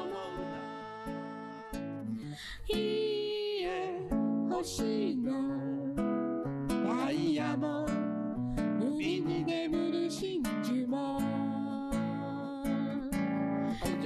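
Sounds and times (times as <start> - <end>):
man singing: 0.0 - 1.9, 6.9 - 7.9, 8.8 - 11.4, 13.8 - 14.0
acoustic guitar strummed: 0.0 - 3.1, 3.7 - 14.0.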